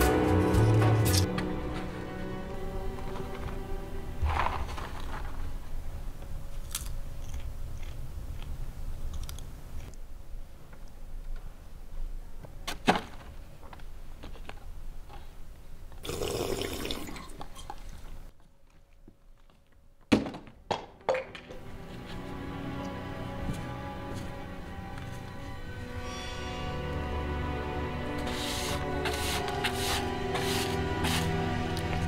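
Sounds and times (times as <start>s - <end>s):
rubbish rustling and crunching: 4.2s - 5.9s.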